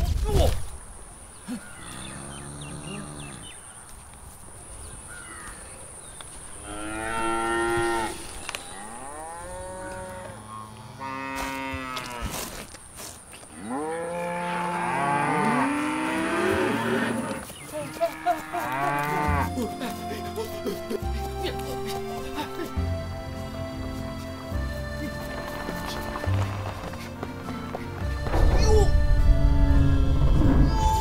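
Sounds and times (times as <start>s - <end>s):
cattle mooing: 13.6s - 19.7s
music: 18.9s - 31.0s.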